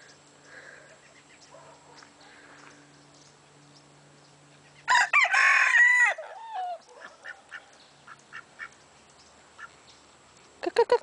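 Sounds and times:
rooster crowing: 0:04.9 - 0:06.8.

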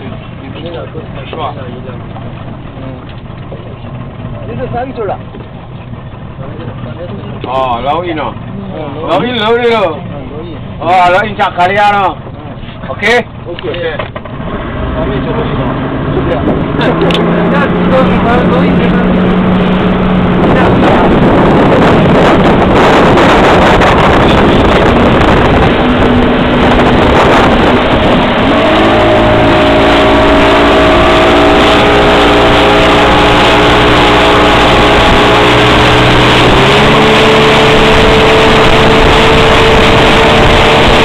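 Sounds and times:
motorboat engine running: 0:00.0 - 0:41.0
water rushing past hull: 0:00.0 - 0:41.0
wind buffeting microphone: 0:13.2 - 0:41.0.

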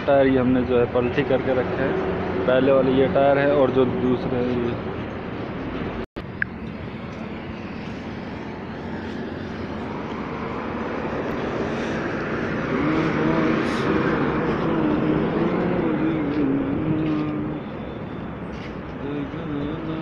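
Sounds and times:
wavering drone: 0:06.2 - 0:20.0.

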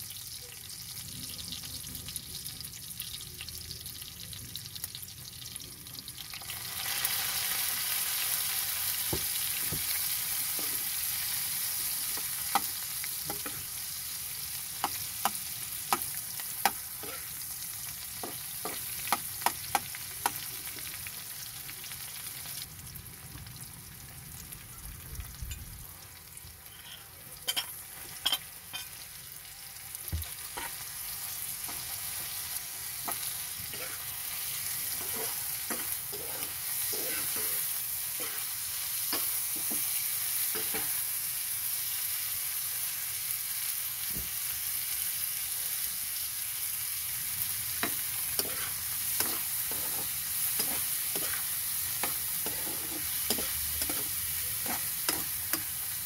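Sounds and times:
food sizzling in hot oil: 0:00.0 - 0:56.0
metal spatula scraping a wok: 0:26.7 - 0:29.0, 0:30.5 - 0:30.8, 0:34.9 - 0:38.5, 0:47.8 - 0:55.8.

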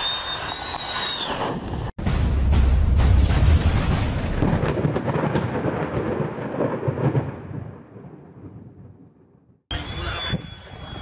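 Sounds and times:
thunder rumbling with crackles: 0:03.2 - 0:11.0.

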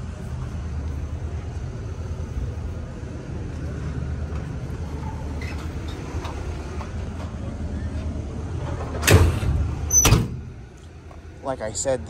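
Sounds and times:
engine idling low rumble: 0:00.0 - 0:12.0
cargo door clicks: 0:08.7 - 0:10.5.

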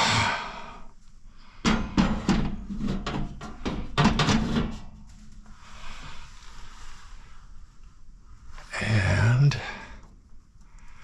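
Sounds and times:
sheet metal clanking and rattling: 0:01.7 - 0:05.0.

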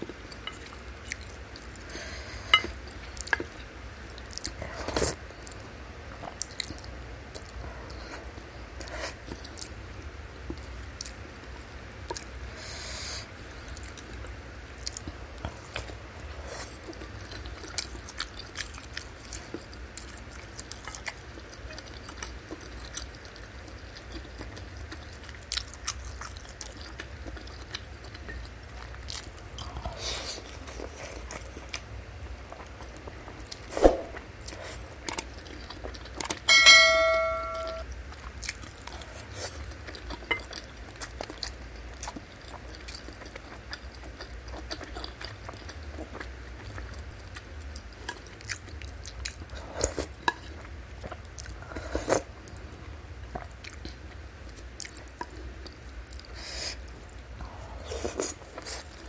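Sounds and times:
chewing and mouth clicks: 0:00.0 - 0:12.4, 0:13.7 - 0:33.7, 0:34.4 - 0:36.5, 0:38.1 - 0:52.6, 0:53.2 - 0:59.0
dish ringing: 0:36.5 - 0:37.8.

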